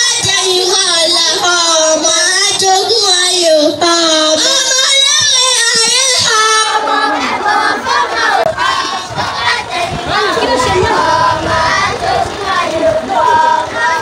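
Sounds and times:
boy chanting into a microphone: 0.0s - 7.4s
children's voices chanting: 0.0s - 14.0s.

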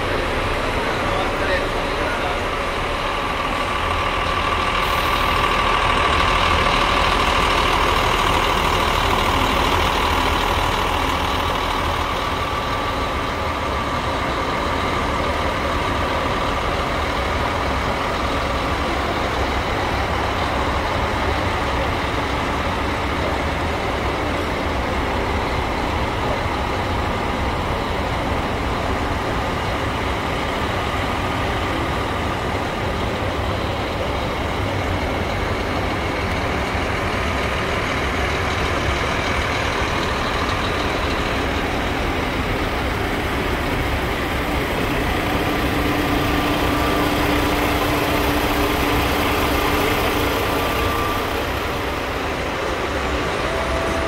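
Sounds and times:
diesel engine idling: 0.0s - 54.0s
steady whine: 38.6s - 54.0s.

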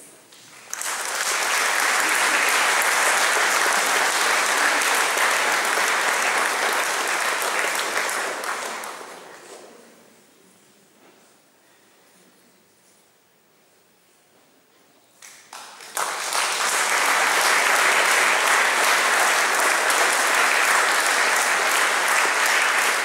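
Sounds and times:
audience applauding: 0.5s - 9.4s, 15.5s - 23.0s.

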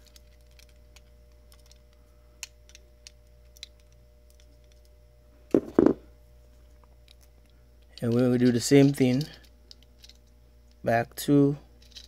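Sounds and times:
loud dull knocks: 5.6s - 6.0s.

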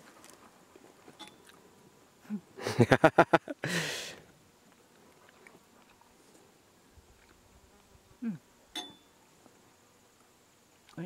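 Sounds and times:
faint chewing: 0.0s - 1.8s
breathy sound: 3.6s - 4.2s.

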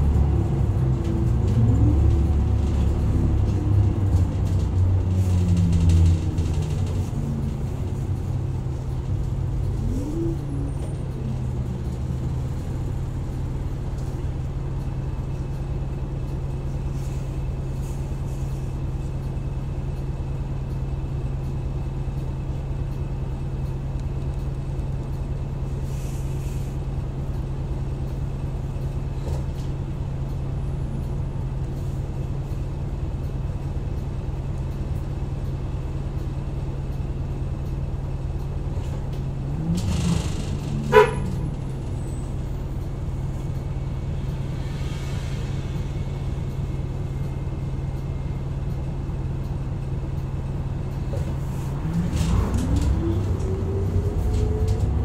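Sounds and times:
bus diesel engine idling: 0.0s - 55.0s.

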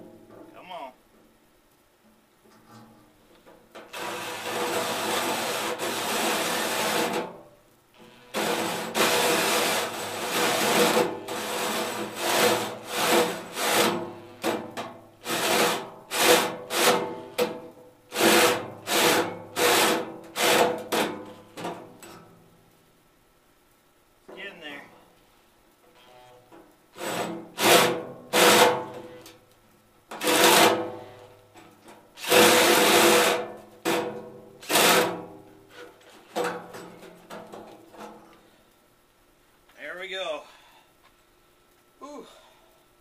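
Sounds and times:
drill hole saw cutting steel: 3.9s - 7.1s, 8.0s - 14.5s, 32.2s - 33.4s.

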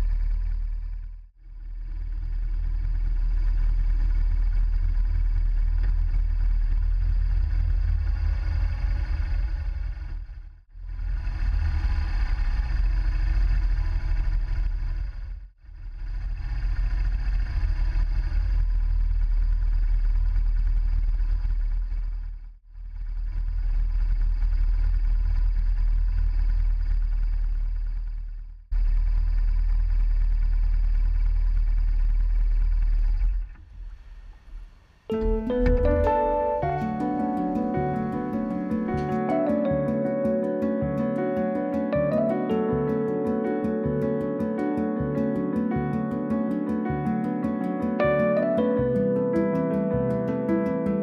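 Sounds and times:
motorcycle engine rumble: 0.0s - 39.5s.

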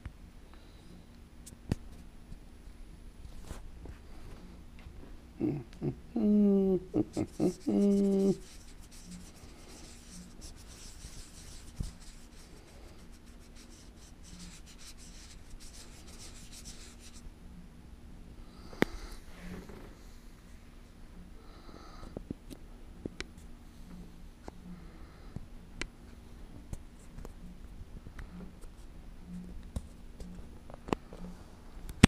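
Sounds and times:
cloth rubbing on lens: 7.0s - 17.3s.

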